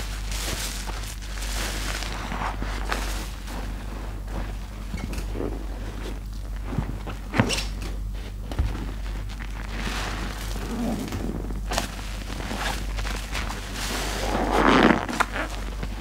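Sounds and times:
wet sponge squelching: 9.4 - 16.0.

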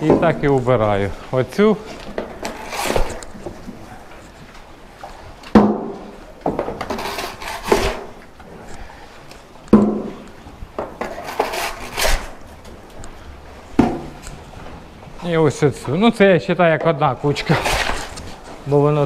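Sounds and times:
shovel scraping concrete: 2.4 - 3.2, 6.8 - 8.2, 11.1 - 12.4, 17.4 - 18.2.

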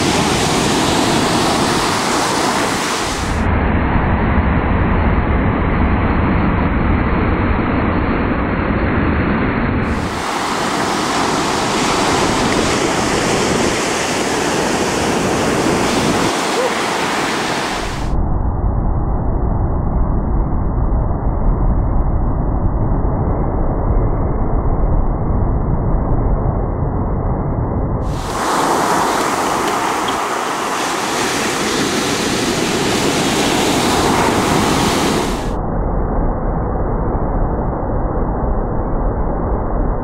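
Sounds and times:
ocean surf breaking on beach: 0.0 - 3.5, 9.8 - 18.2, 28.1 - 35.6.

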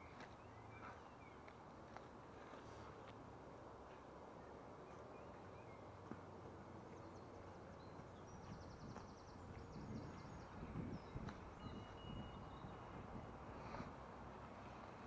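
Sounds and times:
faint outdoor hum: 0.0 - 15.0
bird trill: 11.6 - 12.9.

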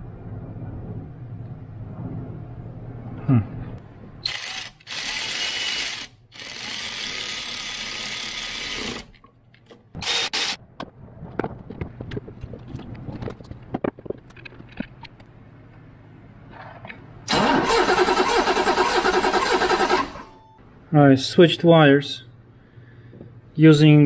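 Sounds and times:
electric ratchet whirring: 4.2 - 9.1, 10.0 - 10.6.

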